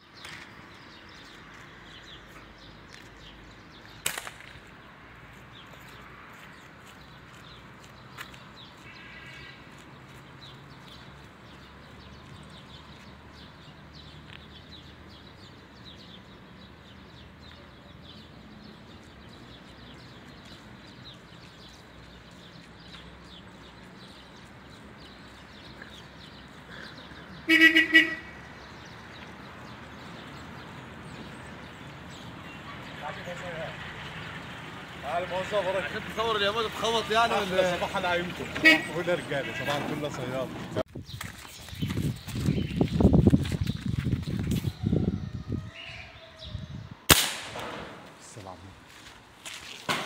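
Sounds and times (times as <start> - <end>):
vehicle horn toots: 27.5 - 28.4, 38.6 - 39.7.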